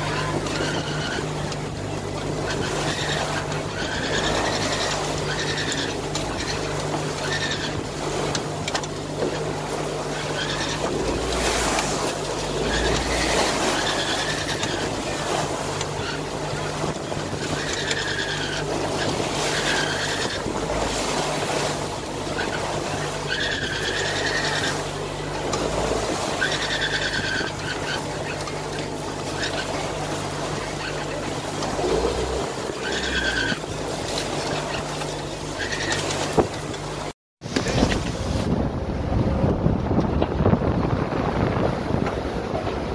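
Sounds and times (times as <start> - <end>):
water rushing along hull: 0.0 - 42.9
wind: 0.0 - 42.9
short high squeal: 17.4 - 21.0, 25.8 - 28.4, 31.9 - 33.8.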